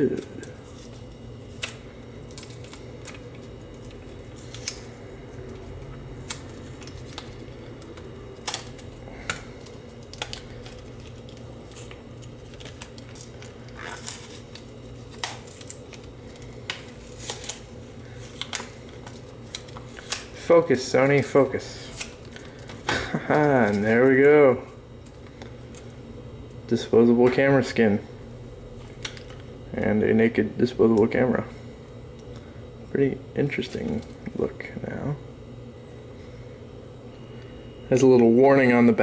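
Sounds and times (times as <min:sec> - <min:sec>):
paper label being peeled: 0:00.0 - 0:20.4
steady low hum: 0:00.0 - 0:39.0.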